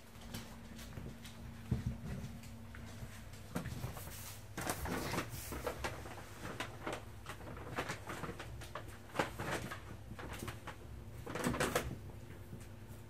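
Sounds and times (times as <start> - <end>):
paws and claws on floor: 0.0 - 13.0
paper bags rustling: 2.9 - 12.0.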